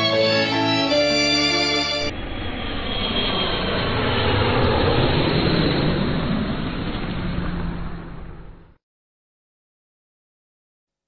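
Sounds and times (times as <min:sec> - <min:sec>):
jet engines running: 0:00.0 - 0:08.8.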